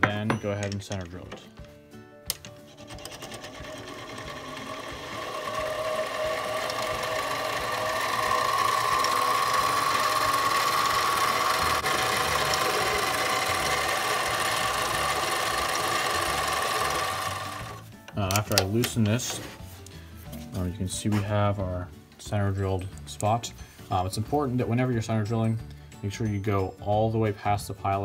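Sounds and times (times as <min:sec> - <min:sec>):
lathe motor whine: 0:02.8 - 0:17.8.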